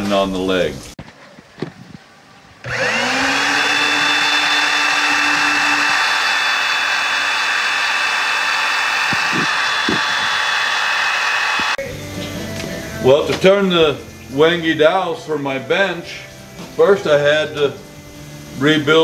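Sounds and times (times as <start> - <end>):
electric drill boring into wood: 2.6 - 11.8.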